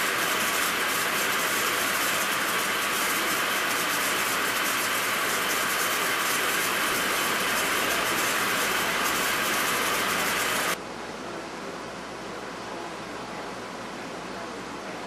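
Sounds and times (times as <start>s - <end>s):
metal lathe cutting steel: 0.0s - 10.8s.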